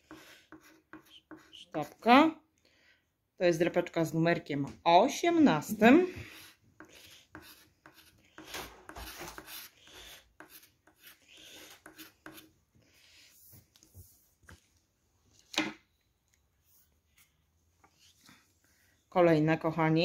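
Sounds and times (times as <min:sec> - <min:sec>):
scratch card scraping: 0:06.3 - 0:12.5.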